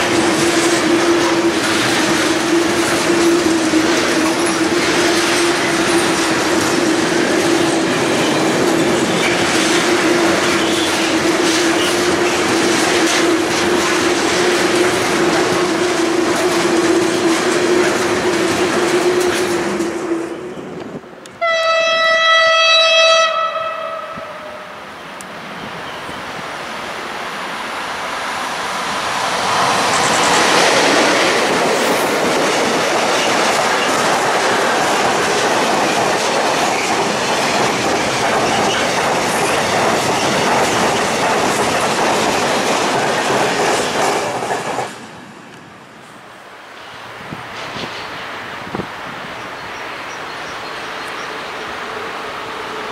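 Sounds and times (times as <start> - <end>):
wheels clattering over rail joints: 0.0 - 20.2, 29.4 - 45.0
train wheels whining: 0.0 - 52.9
locomotive horn blast: 21.3 - 24.8.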